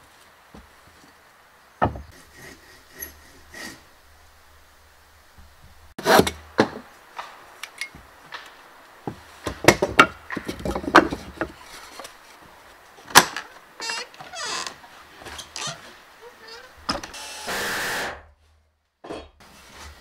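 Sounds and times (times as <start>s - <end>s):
wooden boards knocking: 1.8s - 2.2s, 5.4s - 11.6s.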